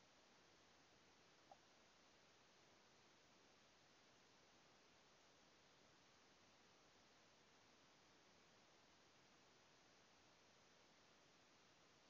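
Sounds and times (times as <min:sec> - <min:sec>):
faint steady hiss: 0:00.0 - 0:12.0.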